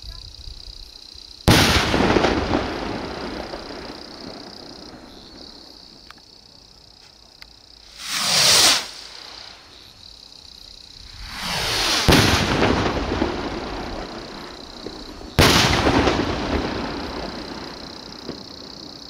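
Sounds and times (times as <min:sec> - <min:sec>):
firework bang: 0:01.5 - 0:05.1, 0:07.9 - 0:09.7, 0:11.0 - 0:18.5
firework rockets whooshing: 0:01.5 - 0:05.1, 0:07.8 - 0:09.8, 0:10.9 - 0:18.5.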